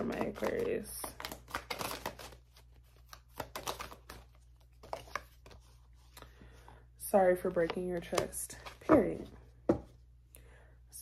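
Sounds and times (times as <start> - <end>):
cards being shuffled: 0.0 - 6.2.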